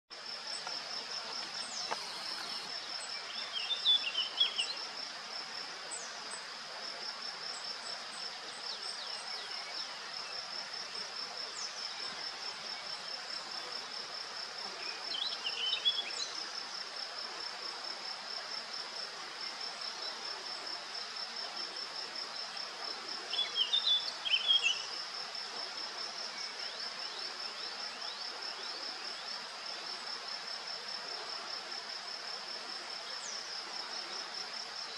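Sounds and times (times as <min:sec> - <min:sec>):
cricket trill: 0:00.2 - 0:04.8.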